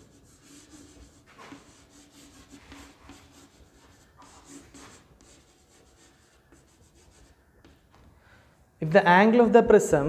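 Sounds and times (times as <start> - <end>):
chalk scratching on chalkboard: 0.0 - 7.4.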